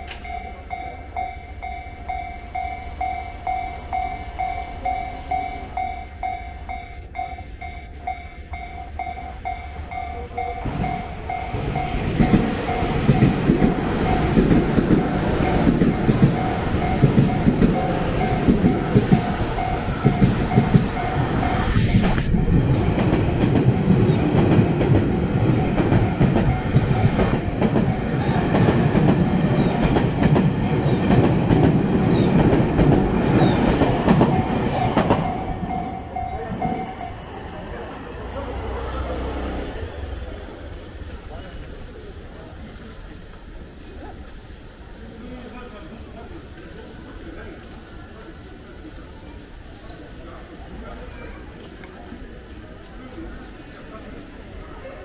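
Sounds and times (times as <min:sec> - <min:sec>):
level crossing bell clanging: 0:00.0 - 0:23.0, 0:25.2 - 0:28.4, 0:34.1 - 0:37.4
train wheels clattering: 0:00.0 - 0:44.5.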